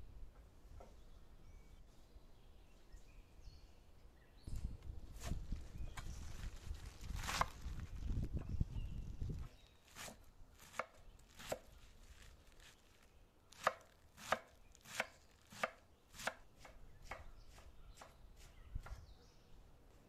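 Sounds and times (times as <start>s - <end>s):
knife chopping on stone: 10.0s - 11.6s, 13.6s - 19.0s.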